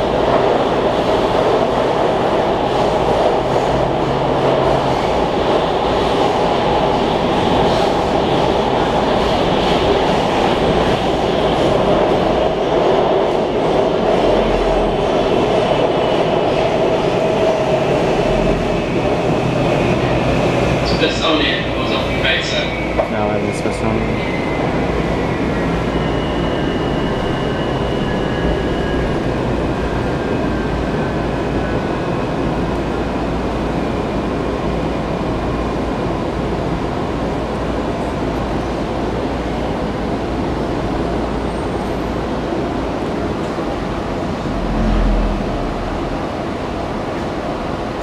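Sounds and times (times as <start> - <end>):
train wheels rumbling on rails: 0.0 - 48.0
low bump of train halting: 43.4 - 47.4.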